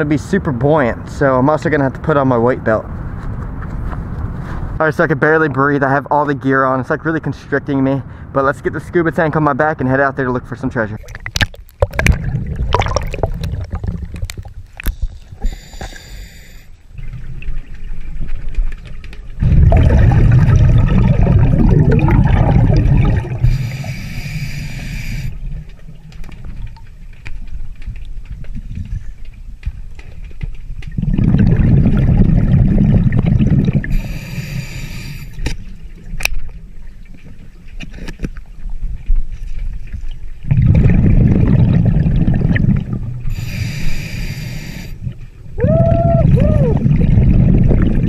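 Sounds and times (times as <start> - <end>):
underwater bubbling: 10.9 - 48.0
regulator inhale hiss: 15.0 - 16.8, 23.4 - 25.4, 33.9 - 35.4, 43.3 - 45.0.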